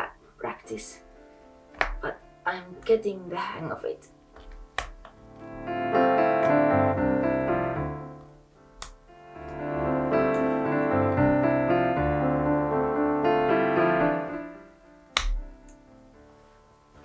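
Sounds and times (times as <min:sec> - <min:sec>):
gentle piano music: 0:00.0 - 0:17.0
sharp click: 0:15.2 - 0:15.8.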